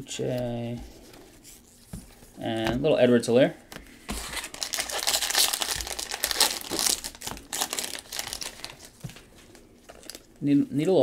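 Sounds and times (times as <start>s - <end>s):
plastic wrapper crinkling: 4.1s - 10.3s.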